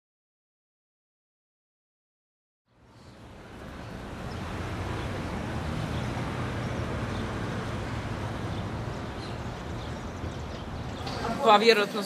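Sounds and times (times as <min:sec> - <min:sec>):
general city noise: 0:02.7 - 0:12.0
low rumble of traffic: 0:02.7 - 0:12.0.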